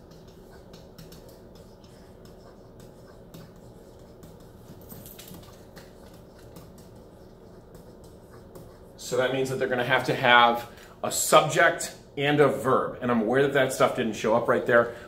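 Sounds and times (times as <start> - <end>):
pen scratching on whiteboard: 0.0 - 10.2
steady low hum: 0.0 - 15.0.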